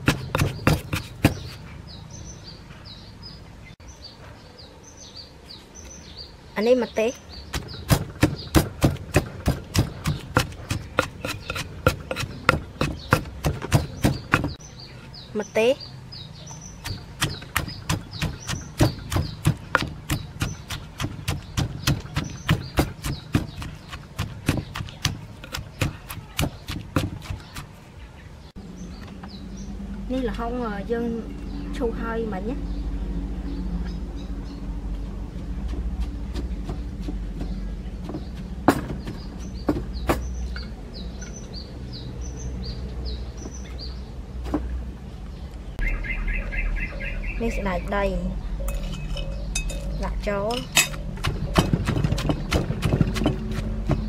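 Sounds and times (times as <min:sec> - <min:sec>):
pestle pounding in stone mortar: 0:00.0 - 0:01.6, 0:07.5 - 0:14.6, 0:16.8 - 0:27.8, 0:35.6 - 0:40.3, 0:48.7 - 0:54.0
bird chirping: 0:00.0 - 0:54.0.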